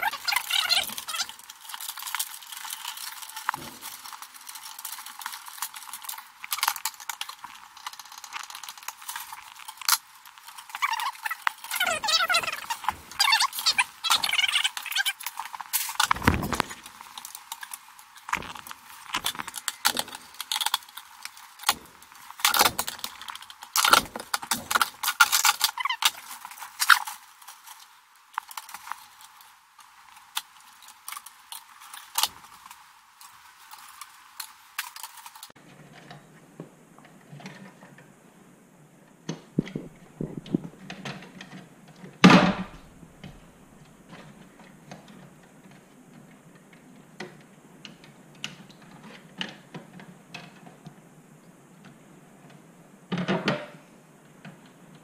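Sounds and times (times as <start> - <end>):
metallic clicks and rattles: 0.0 - 36.2.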